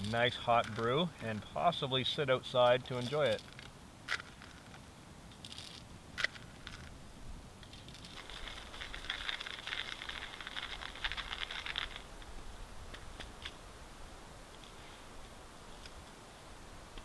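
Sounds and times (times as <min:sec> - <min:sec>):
hand coffee grinder crunching: 0:07.7 - 0:12.1.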